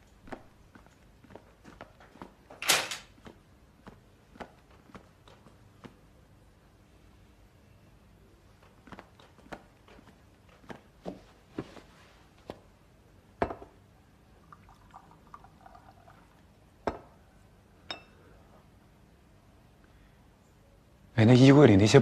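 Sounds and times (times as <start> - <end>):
cups and cans knocking and clinking: 13.4 - 13.8, 16.8 - 17.1
tea pouring into cup: 14.4 - 16.6.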